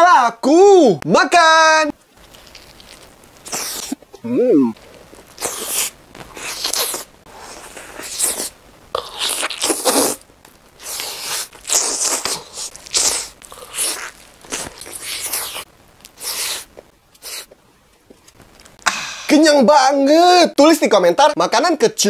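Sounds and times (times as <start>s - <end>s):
crunchy biting and chewing: 2.2s - 4.0s, 5.3s - 10.2s, 10.8s - 17.5s.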